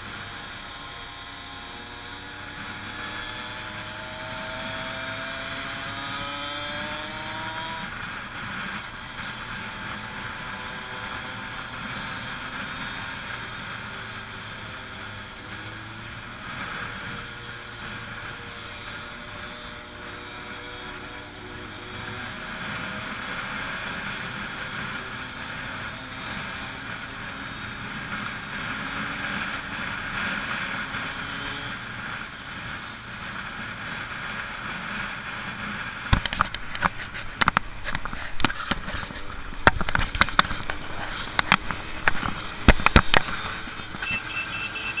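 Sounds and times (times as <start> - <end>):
motorcycle engine running: 0.0 - 45.0
sharp clicks and knocks: 36.0 - 44.2
short beep: 44.0 - 45.0.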